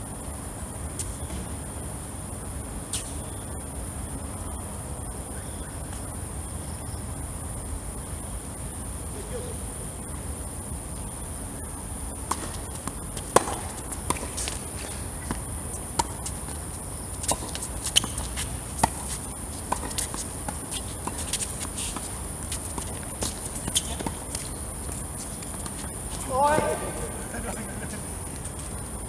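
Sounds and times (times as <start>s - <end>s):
steady high-pitched whine: 0.0s - 29.0s
tennis balls hit by rackets: 12.2s - 28.6s
footsteps and shoe scuffs: 12.4s - 26.9s.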